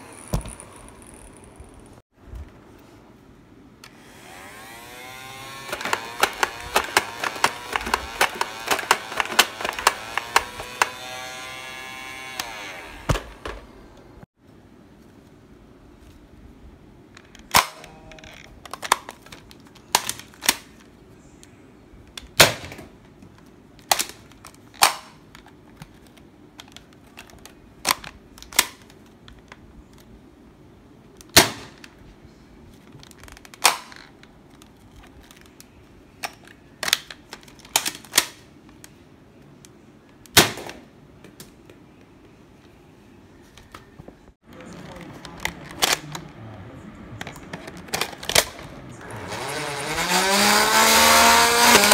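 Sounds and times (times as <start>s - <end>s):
toy blaster snaps and clacks: 5.6s - 11.0s, 51.6s - 51.9s.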